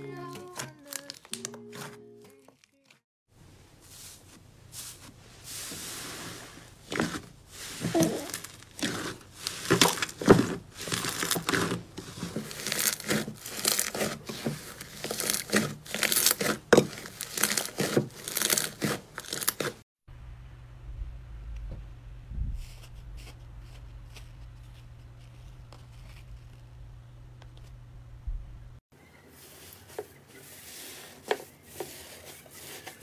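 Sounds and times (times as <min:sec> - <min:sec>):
slime crackling and popping: 0:07.9 - 0:19.8
faint low hum: 0:20.1 - 0:28.8.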